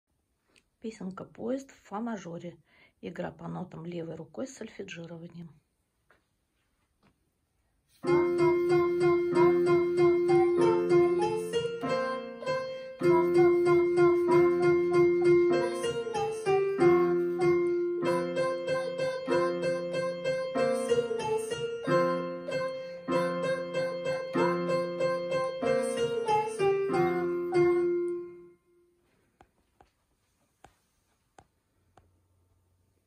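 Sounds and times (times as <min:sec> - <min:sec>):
electronic keyboard melody: 0:08.0 - 0:28.9.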